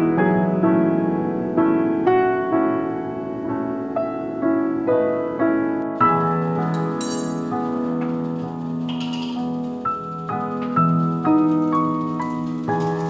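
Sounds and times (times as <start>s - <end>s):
soft solo piano: 0.0s - 13.0s.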